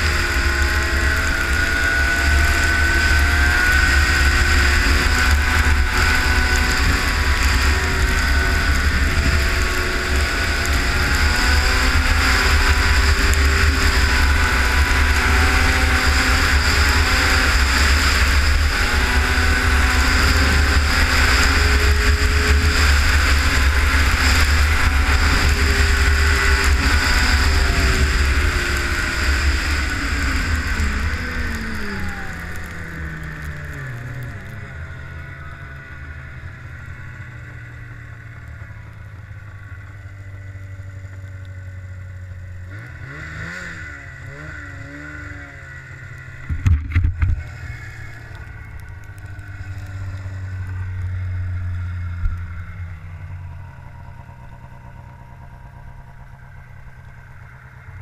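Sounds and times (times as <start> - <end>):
rushing wind: 0.0 - 38.8
snowmobile engine running: 0.0 - 58.0
snowmobile track noise: 0.0 - 58.0.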